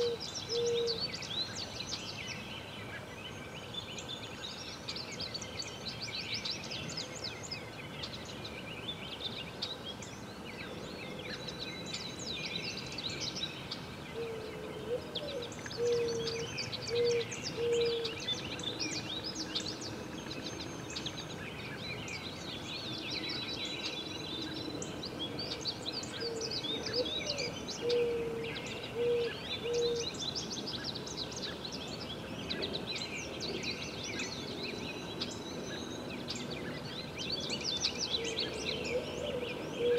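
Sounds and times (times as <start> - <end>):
low cooing bird call: 0.0 - 1.3, 14.1 - 19.8, 23.2 - 31.6, 32.4 - 39.9
small birds chirping: 0.0 - 39.9.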